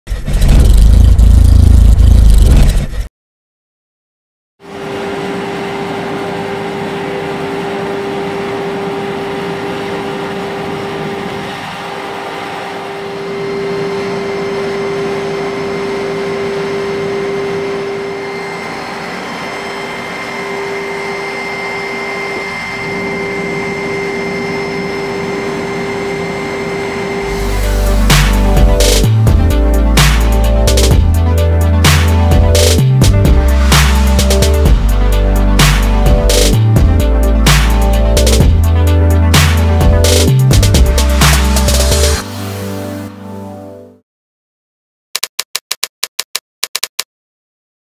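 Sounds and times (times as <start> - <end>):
short loud opening sound: 0.1 - 3.1
printing machine humming: 4.7 - 27.7.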